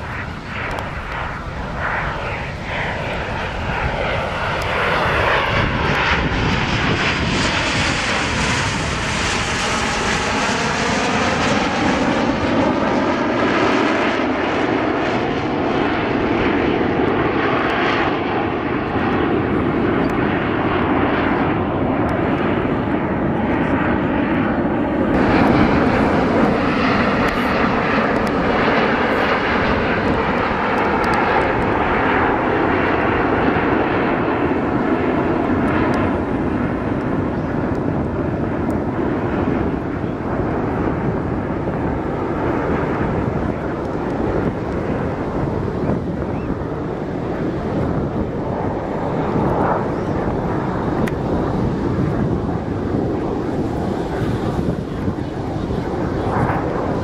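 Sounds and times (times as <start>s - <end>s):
jet engine whine: 0.0s - 57.0s
jets roaring past: 0.0s - 57.0s.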